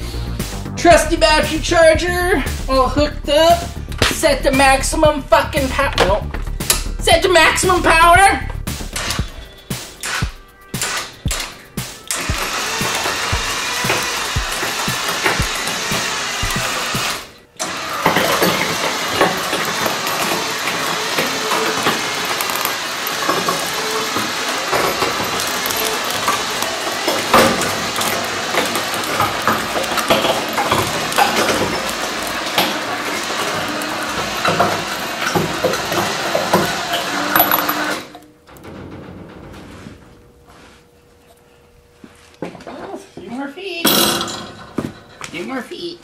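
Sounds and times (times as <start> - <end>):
rollers and skids cracking: 3.4 - 41.5
electric winch motor drone: 10.8 - 39.4.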